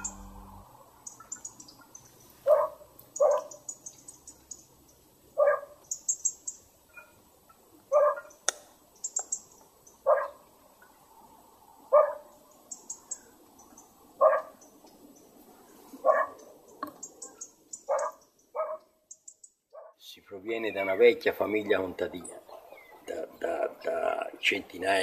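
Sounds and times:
short animal calls: 0.0s - 0.7s.

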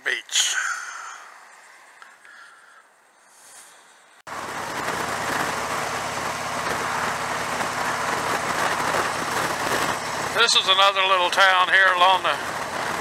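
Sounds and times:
motorcycle engine running: 4.3s - 13.0s.

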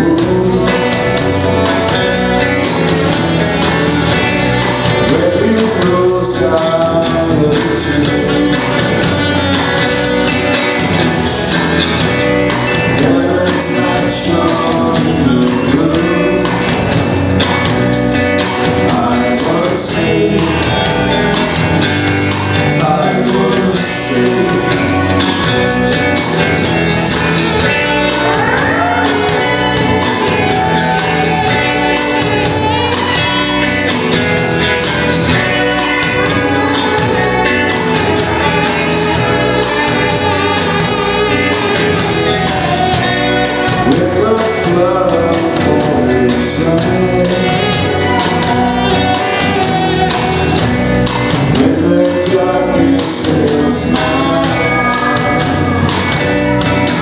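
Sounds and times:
bass guitar: 0.0s - 57.0s
drum kit beat: 0.0s - 57.0s
guitar: 0.0s - 57.0s
saxophone: 0.0s - 57.0s
woman singing: 27.4s - 34.0s, 35.2s - 50.8s.

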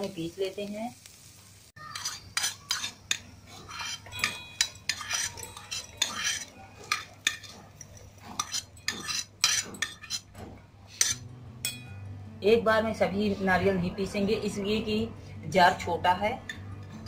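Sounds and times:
metal spoon scraping a frying pan: 1.8s - 11.9s.

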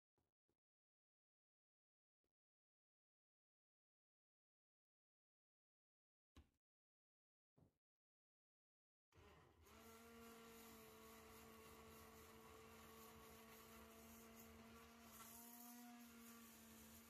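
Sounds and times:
immersion blender motor humming: 9.2s - 17.0s.

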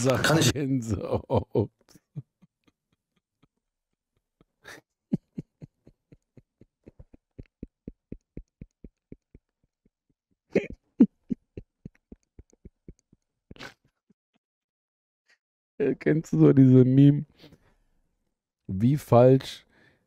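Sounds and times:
man laughing hard: 0.0s - 3.0s, 4.4s - 9.4s, 10.5s - 13.8s.

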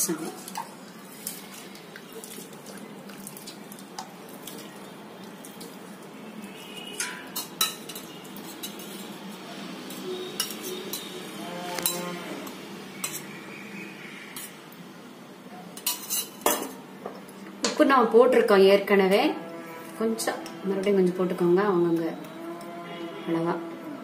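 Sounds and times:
spoon clinking on steel bowl: 6.9s - 9.1s, 10.4s - 11.2s, 11.8s - 12.2s.

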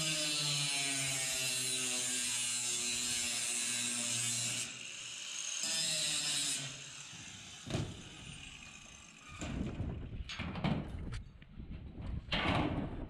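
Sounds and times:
angle grinder cutting steel: 0.0s - 9.4s.

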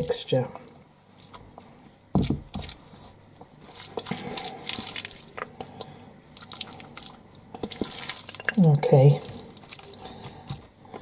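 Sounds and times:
spoon scooping wet mixture: 3.6s - 10.8s.

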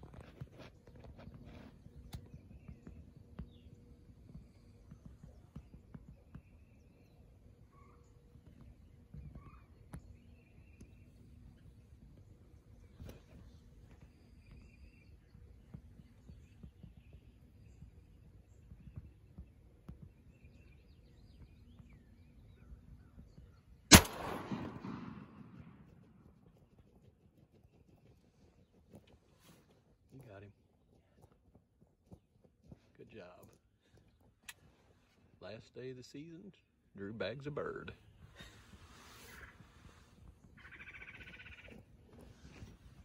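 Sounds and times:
faint distant bird calls: 0.0s - 43.0s
shotgun blast: 23.9s - 25.9s.

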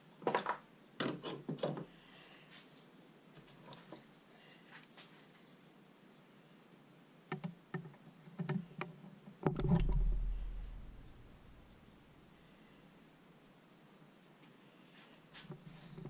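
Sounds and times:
heavy metal knock: 9.5s - 11.6s
low rumble: 9.6s - 12.0s.

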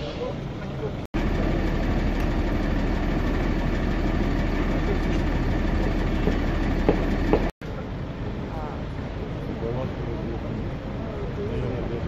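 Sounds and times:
motor idling: 1.2s - 7.5s.

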